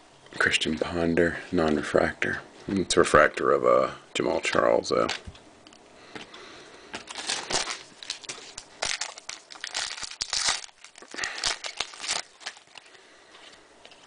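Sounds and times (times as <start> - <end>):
foil wrapper crinkling: 7.0 - 14.0.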